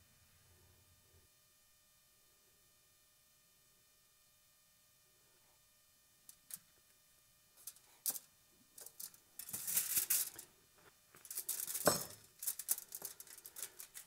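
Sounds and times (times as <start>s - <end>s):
scraping and rustling: 8.8s - 10.5s, 11.1s - 14.0s.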